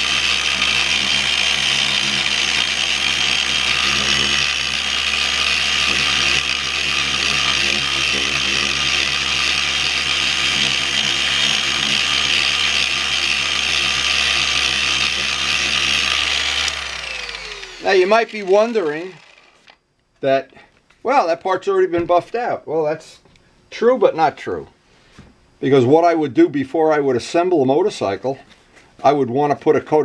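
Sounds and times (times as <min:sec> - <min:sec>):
orbital polisher motor whine: 0:00.0 - 0:19.8.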